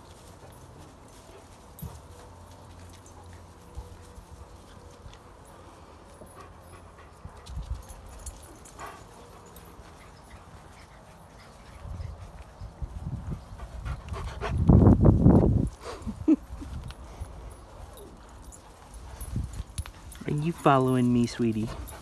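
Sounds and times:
dogs scuffling: 0.0 - 14.2.

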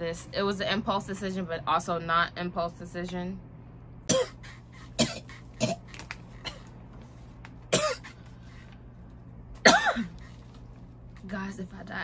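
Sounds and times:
raspy throat-clearing: 4.1 - 6.7
woman coughing: 4.1 - 6.7, 7.7 - 8.2, 9.6 - 10.2.

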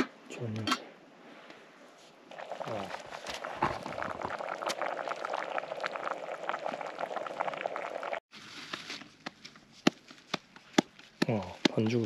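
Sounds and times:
food bubbling and sizzling in pot: 2.3 - 8.2.

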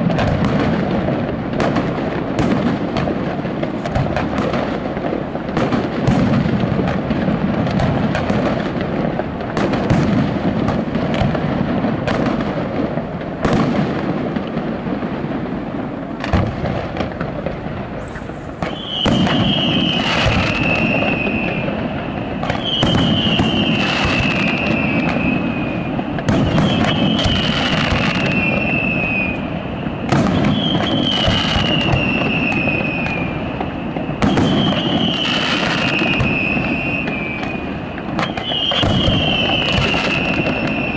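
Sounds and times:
background noise: 0.0 - 40.9
firework whistle: 0.0 - 40.9
fireworks shells bursting: 16.1 - 29.5.

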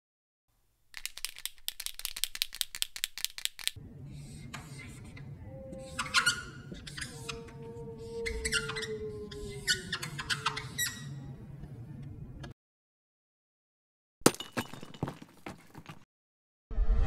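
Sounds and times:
dry rattle of quick clicks: 0.9 - 3.8
low hum: 3.8 - 12.5.

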